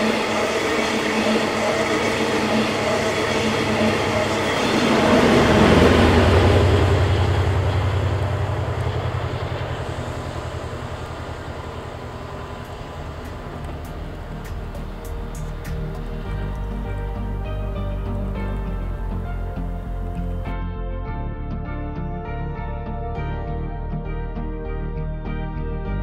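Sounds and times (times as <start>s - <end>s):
train coaches rumbling on rails: 0.0s - 20.4s
pulsing diesel engine drone: 0.0s - 20.6s.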